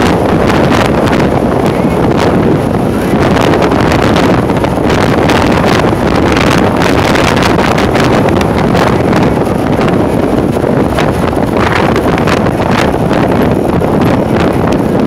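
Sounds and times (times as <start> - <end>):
motorcycle running: 0.0 - 15.0
road noise: 0.0 - 15.0
wind rushing over microphone: 0.0 - 15.0.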